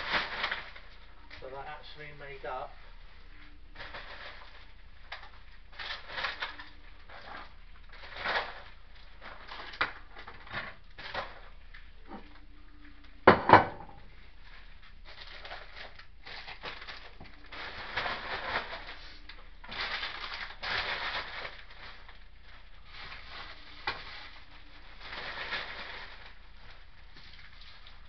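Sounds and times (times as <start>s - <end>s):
rustling and scraping: 0.0s - 13.0s, 14.0s - 28.0s
sharp knocks on worktop: 13.3s - 13.9s.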